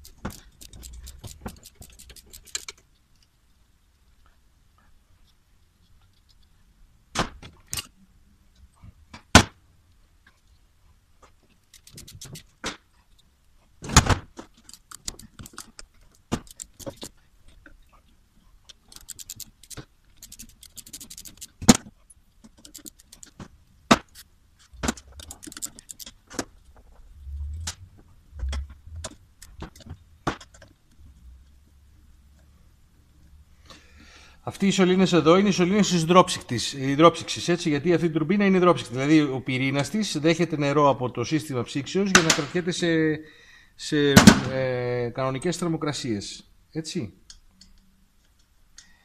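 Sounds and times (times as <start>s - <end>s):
ratchet wrench clicking: 0.0s - 2.8s, 11.7s - 12.5s, 14.7s - 15.7s, 16.4s - 17.1s, 18.9s - 21.6s, 22.6s - 23.3s, 25.0s - 26.1s.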